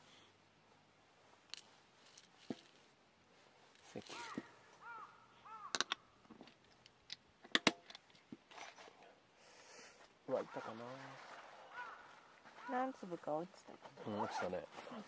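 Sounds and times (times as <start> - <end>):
crow cawing: 4.1 - 6.2, 11.7 - 12.9.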